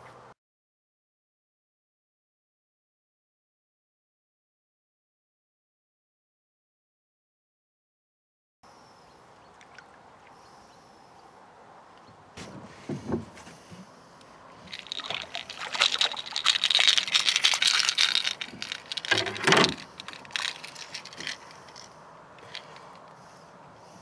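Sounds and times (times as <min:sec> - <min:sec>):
fish thrashing and splashing: 0:14.6 - 0:22.8.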